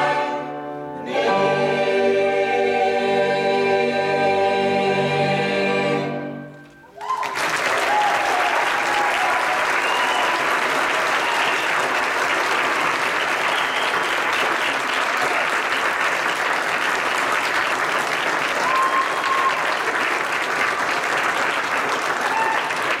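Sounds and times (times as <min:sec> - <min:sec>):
audience applauding: 0:06.9 - 0:23.0.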